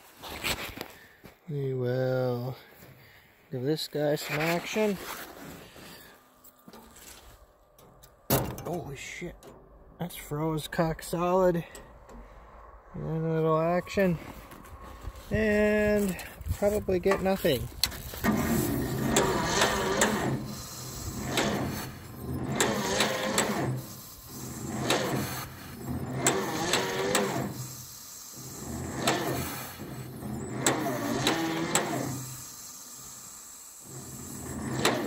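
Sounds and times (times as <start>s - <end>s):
engine cranking without firing: 7.8s - 14.8s, 15.4s - 35.0s.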